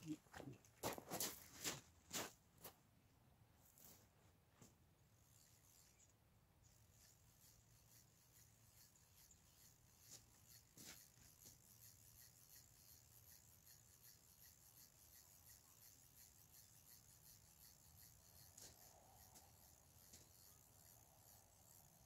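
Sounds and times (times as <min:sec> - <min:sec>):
fishing reel ticking: 0:05.3 - 0:22.0.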